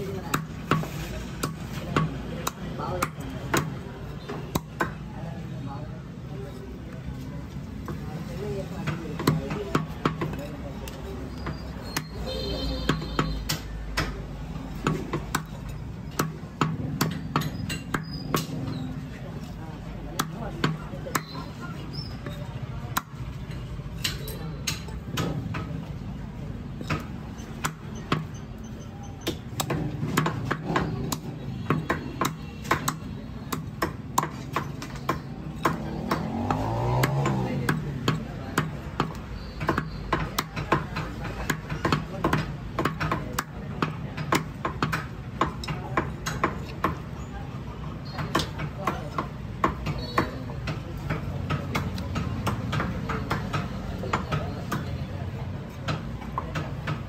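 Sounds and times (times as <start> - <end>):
cleaver chopping on wooden block: 0.2 - 5.0, 8.8 - 19.5, 20.1 - 21.6, 26.8 - 28.4, 29.2 - 47.3, 48.0 - 55.0
sharp knocks and clacks: 48.1 - 55.0.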